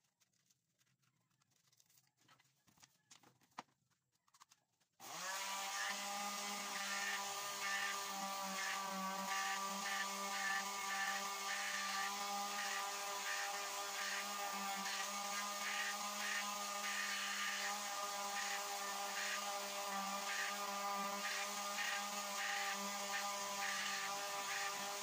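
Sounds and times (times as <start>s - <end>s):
electric sander motor hum: 5.0s - 25.0s.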